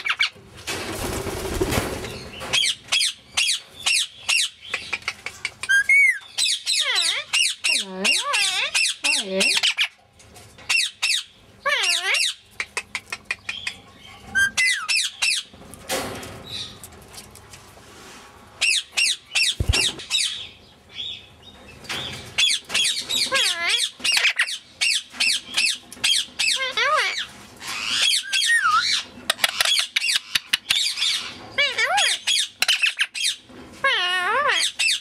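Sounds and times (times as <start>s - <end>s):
parakeet chattering and squawking: 2.5s - 10.0s, 10.7s - 15.5s, 22.4s - 35.0s.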